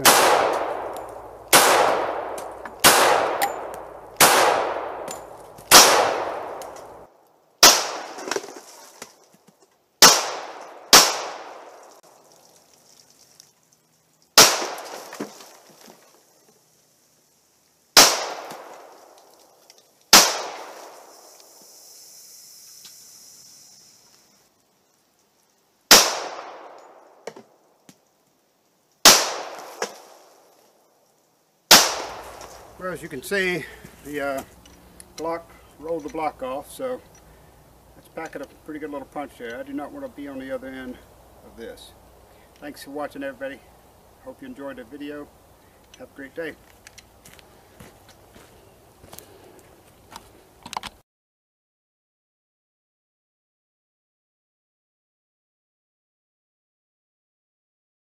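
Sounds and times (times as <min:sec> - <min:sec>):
pistol shots echoing: 0:00.0 - 0:07.0, 0:07.6 - 0:08.2, 0:10.0 - 0:11.8, 0:14.4 - 0:15.0, 0:18.0 - 0:18.9, 0:20.1 - 0:21.0, 0:25.9 - 0:26.9, 0:29.0 - 0:29.6, 0:31.7 - 0:32.3.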